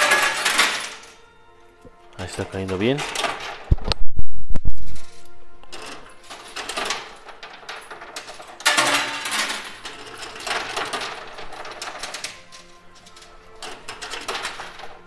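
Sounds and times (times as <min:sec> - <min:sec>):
coins clinking and spilling: 0:00.0 - 0:01.2, 0:04.8 - 0:15.0.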